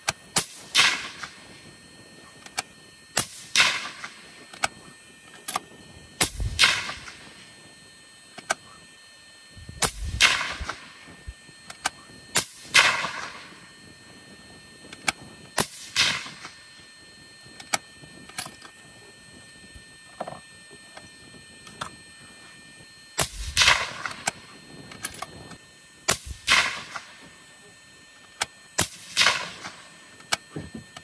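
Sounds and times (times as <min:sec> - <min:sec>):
rifle shots with echo: 0:06.2 - 0:07.2, 0:09.8 - 0:10.8, 0:23.2 - 0:24.2, 0:26.1 - 0:27.1, 0:28.8 - 0:29.8.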